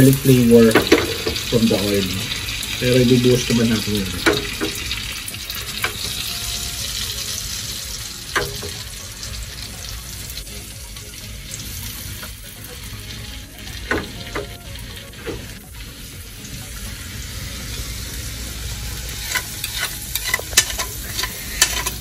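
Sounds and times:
butter and oil sizzling in pan: 0.0s - 22.0s
metal tongs clicking on pan: 8.3s - 8.8s, 19.2s - 22.0s.

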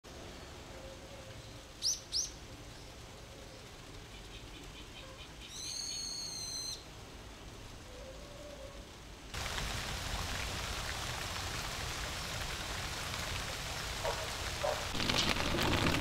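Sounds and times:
faint background hiss: 0.1s - 16.0s
bird whistle: 5.5s - 6.8s.

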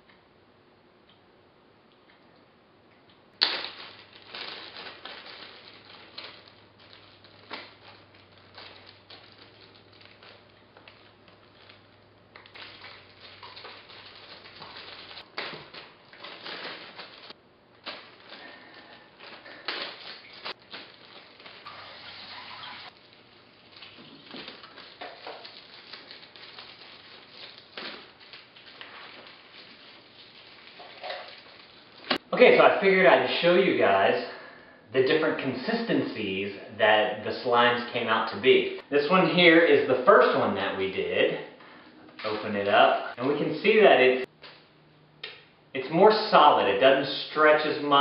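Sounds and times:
plastic bag crinkling: 3.4s - 32.2s.

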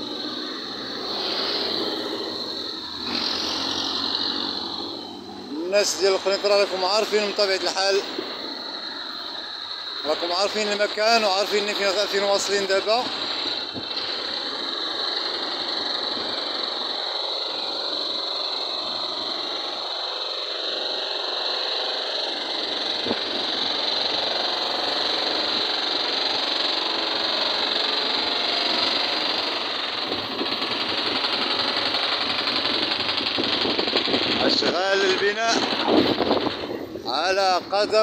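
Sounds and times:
city street noise: 0.0s - 38.0s
high-pitched whirr: 0.0s - 38.0s.

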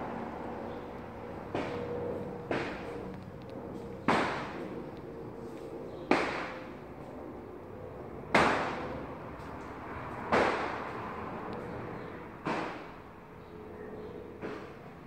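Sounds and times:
sharp knocks: 2.5s - 3.0s, 4.0s - 4.7s, 6.1s - 6.7s, 12.4s - 13.0s.

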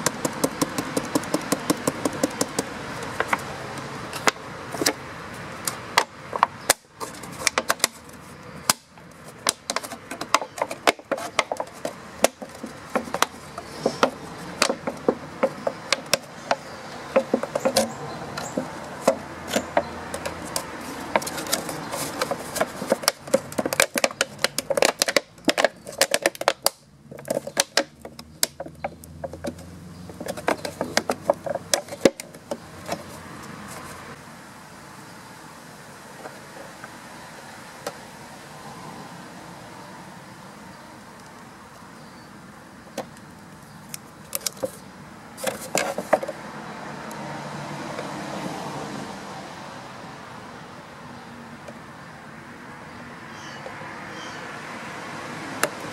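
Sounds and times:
plastic bottle crackling: 5.7s - 34.0s.

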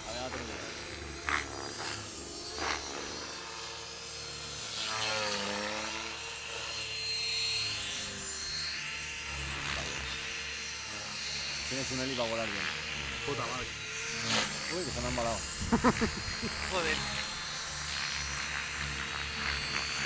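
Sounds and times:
rc helicopter motor whining: 0.0s - 20.0s.

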